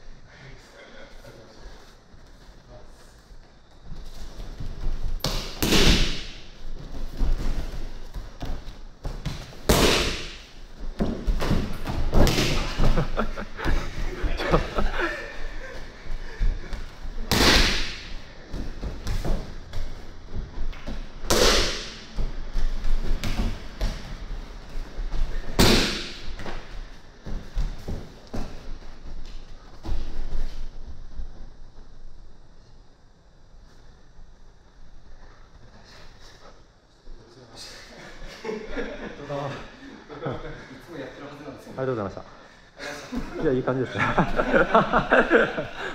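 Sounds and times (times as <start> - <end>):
bodies thudding on mat: 4.0 - 14.8.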